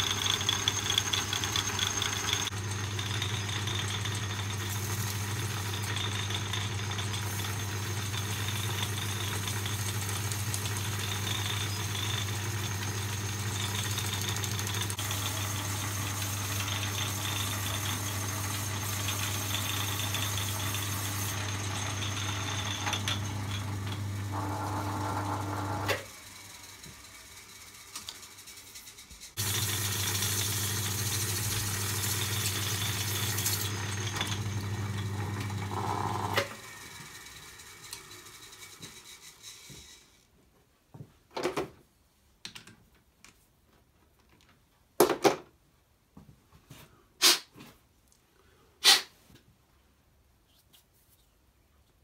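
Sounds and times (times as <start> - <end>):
lathe humming: 0.0 - 26.7.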